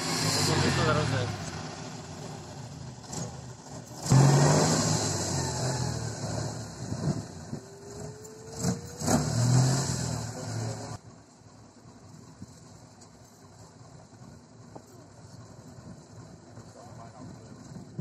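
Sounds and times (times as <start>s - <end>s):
engine revving hard: 0.0s - 11.0s.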